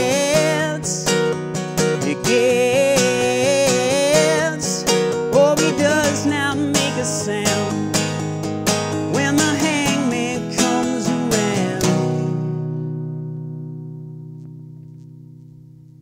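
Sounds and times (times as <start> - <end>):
man singing wordless melody: 0.0 - 12.4
acoustic guitar strumming: 0.0 - 16.0.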